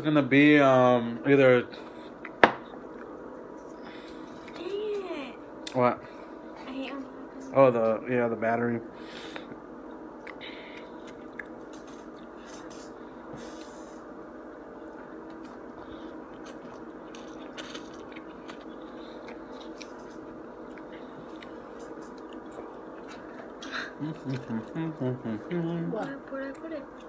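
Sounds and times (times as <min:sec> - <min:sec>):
steady background hum: 0:00.0 - 0:27.0
chewing: 0:15.2 - 0:25.0.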